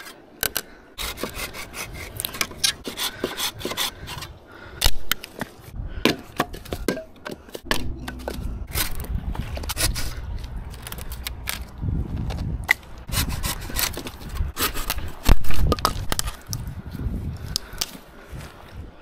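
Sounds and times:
branches rustling and scraping: 7.4s - 18.9s
dry branches cracking: 7.6s - 13.0s.

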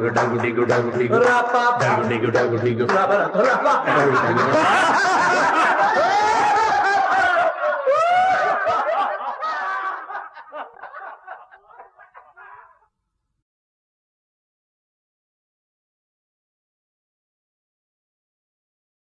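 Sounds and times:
laughter: 3.1s - 13.0s.

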